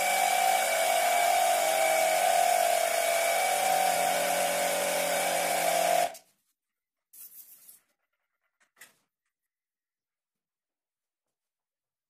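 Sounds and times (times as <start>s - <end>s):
small compressor humming: 0.0s - 6.2s.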